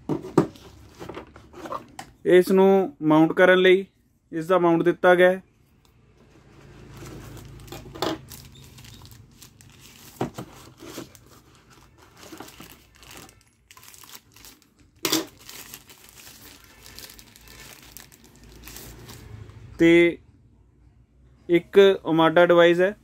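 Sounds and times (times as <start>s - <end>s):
plastic bag crinkling: 6.8s - 19.3s.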